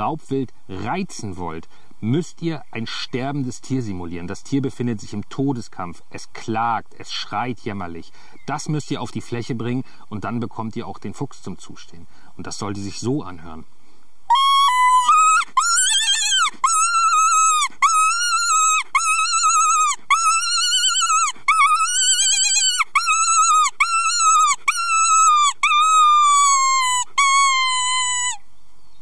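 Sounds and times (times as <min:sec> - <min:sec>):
predator call squealing cries: 0:14.3 - 0:28.5.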